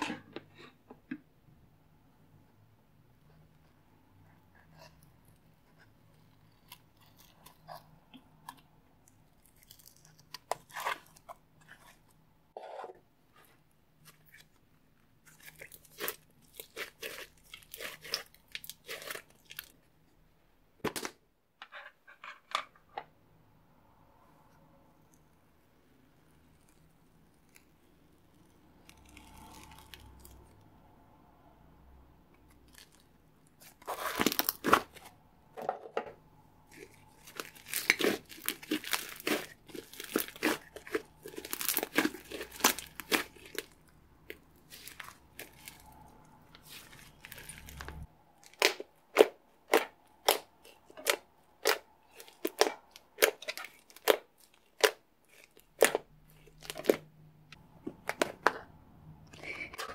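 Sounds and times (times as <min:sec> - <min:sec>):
slime crackling and popping: 0:15.2 - 0:19.7, 0:36.7 - 0:46.0, 0:46.6 - 0:57.1.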